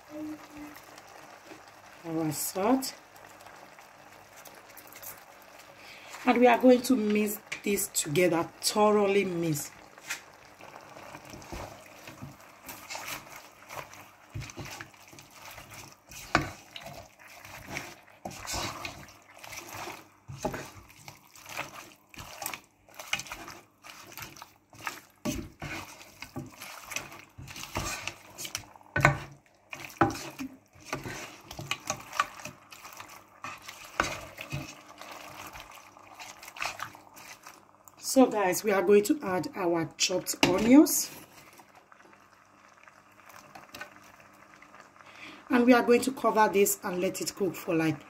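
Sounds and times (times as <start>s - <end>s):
wet chicken pieces moving: 9.3s - 38.5s
spatula knocking and scraping pot: 11.3s - 34.8s.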